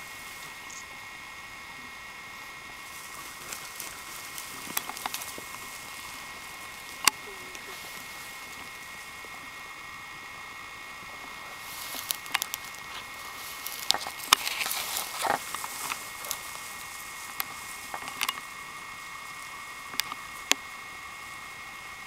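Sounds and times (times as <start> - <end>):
rustling through vegetation: 0.0 - 22.0
sharp clicks and snaps: 12.0 - 13.0, 13.6 - 16.6, 17.3 - 18.5, 19.9 - 20.6.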